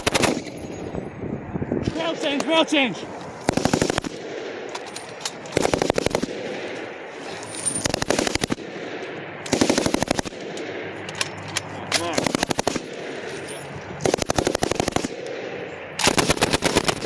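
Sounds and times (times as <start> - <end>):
machine-gun fire bursts: 0.0 - 0.5, 3.5 - 4.5, 5.6 - 6.8, 7.8 - 8.9, 9.5 - 10.6, 12.0 - 13.2, 14.0 - 17.0.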